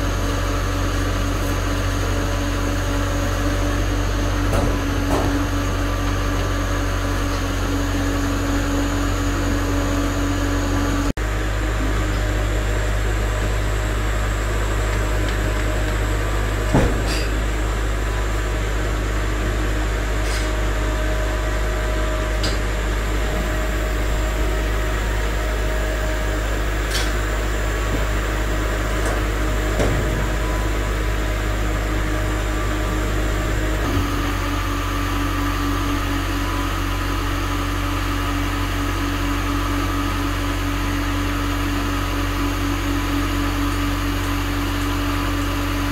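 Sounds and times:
machinery humming: 0:00.0 - 0:45.9.

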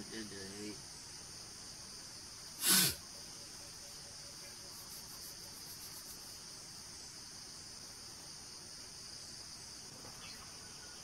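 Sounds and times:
crickets and insects chirping: 0:00.0 - 0:11.0
hiss-like rush of noise: 0:00.6 - 0:03.1.

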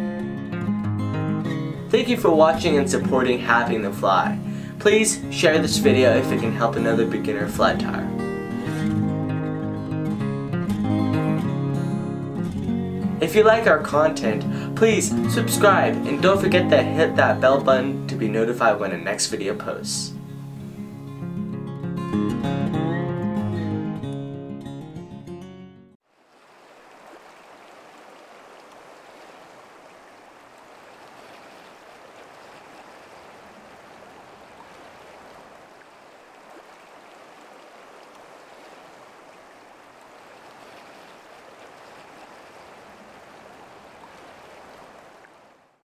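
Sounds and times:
acoustic guitar: 0:00.0 - 0:26.0
stream water babbling: 0:00.8 - 0:11.4, 0:12.6 - 0:21.2, 0:26.0 - 0:45.8.

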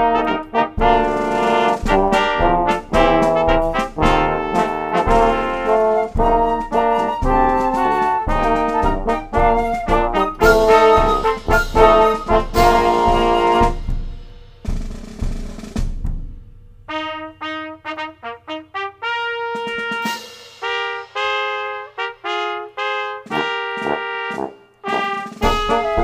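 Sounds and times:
trumpets playing short notes: 0:00.0 - 0:13.9, 0:16.9 - 0:26.0
brass ensemble playing a march: 0:00.0 - 0:16.0, 0:16.9 - 0:26.0
cymbal crash: 0:10.6 - 0:16.9.

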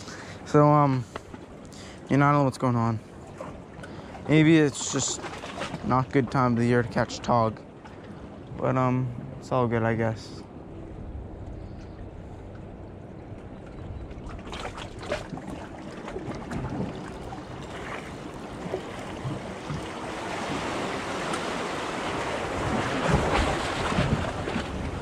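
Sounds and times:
sea water splashing against rocks: 0:03.3 - 0:06.2, 0:14.1 - 0:25.0
wind buffeting microphone: 0:10.7 - 0:25.0.

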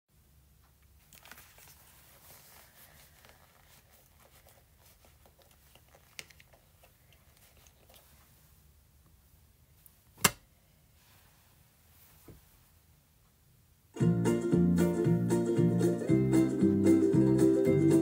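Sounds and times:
faint rustles: 0:00.9 - 0:08.7, 0:09.6 - 0:12.9.

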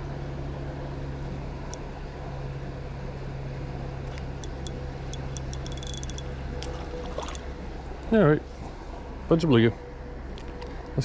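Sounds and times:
low mechanical hum: 0:00.0 - 0:11.0
spinning reel clicking: 0:04.4 - 0:06.3.

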